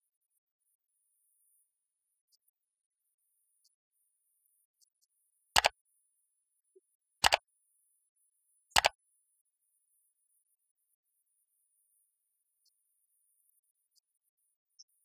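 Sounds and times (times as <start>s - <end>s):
mouse double clicks: 5.6s - 5.8s, 7.2s - 7.4s, 8.8s - 9.0s.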